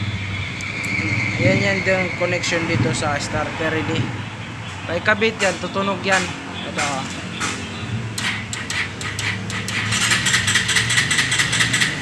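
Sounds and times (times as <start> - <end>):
scattered clicks: 5.4 - 12.0
motorcycle starter cranking: 8.1 - 12.0.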